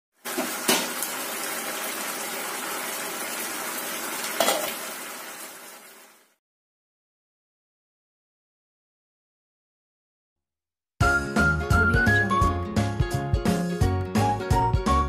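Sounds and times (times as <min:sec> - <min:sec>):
sauce sizzling and bubbling in pan: 0:00.2 - 0:06.3.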